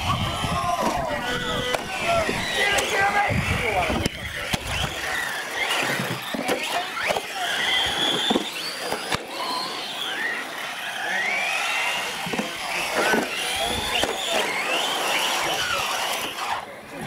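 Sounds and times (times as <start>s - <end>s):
rc truck motors whining: 0.0s - 17.0s.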